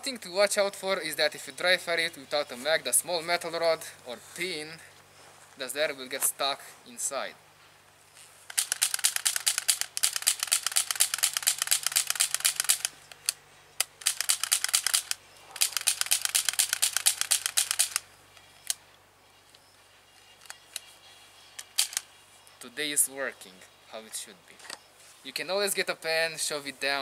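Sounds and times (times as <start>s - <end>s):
airsoft pistol clicking: 8.5s - 18.8s, 21.6s - 22.1s.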